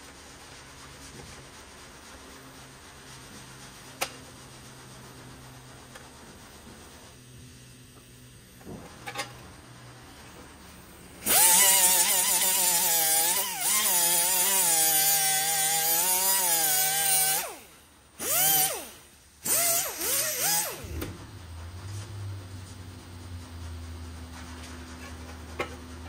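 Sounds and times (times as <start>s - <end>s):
pneumatic cut-off tool whining: 11.2s - 21.2s.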